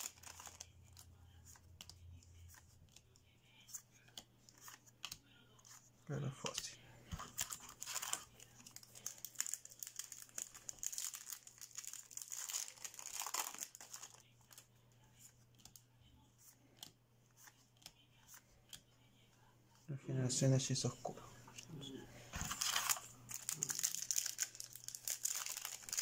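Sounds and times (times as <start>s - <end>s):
foil wrapper crinkling: 0.0s - 0.6s, 7.3s - 14.2s, 22.4s - 26.0s.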